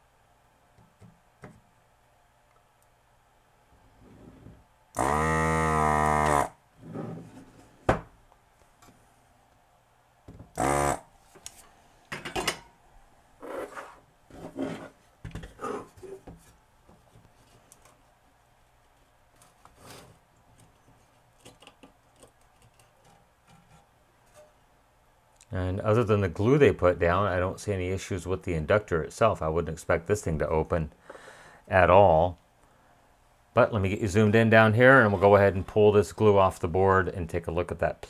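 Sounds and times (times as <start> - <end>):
desoldering vacuum pump: 5.0 - 6.6, 10.6 - 11.6.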